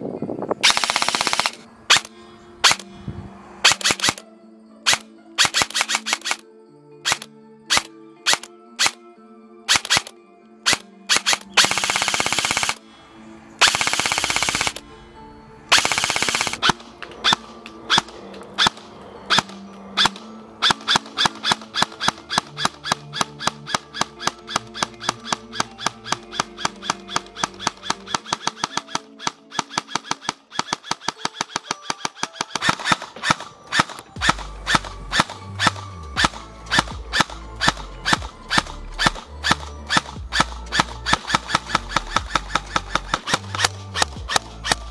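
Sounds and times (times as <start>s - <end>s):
airsoft gun full-auto bursts: 0.6s - 2.8s, 3.6s - 4.2s, 4.9s - 6.4s, 7.0s - 9.0s, 9.7s - 10.1s, 10.7s - 12.8s, 13.6s - 14.8s, 15.7s - 44.9s
music with quick beat: 20.8s - 44.9s.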